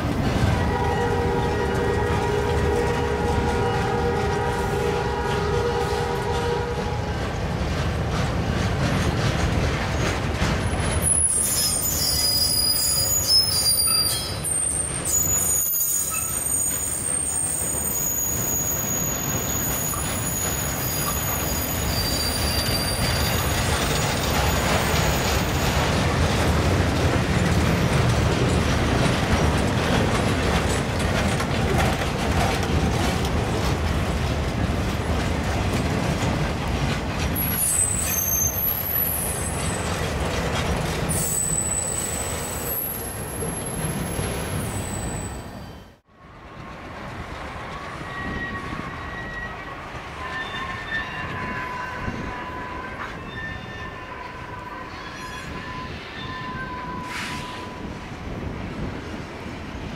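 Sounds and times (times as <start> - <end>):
freight train wheels rumbling on rails: 0.0 - 59.9
high-pitched wheel squeal: 11.0 - 25.6, 37.4 - 39.8, 41.1 - 45.9, 48.0 - 57.9.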